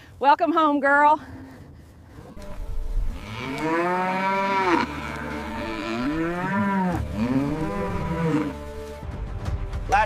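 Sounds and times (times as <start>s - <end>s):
cattle mooing: 2.4s - 8.7s.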